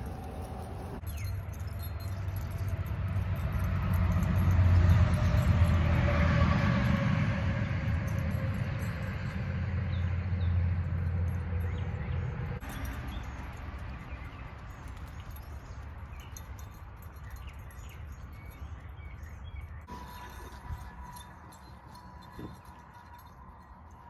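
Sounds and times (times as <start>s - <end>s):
motor vehicle passing by: 0.0s - 1.0s, 2.1s - 16.7s.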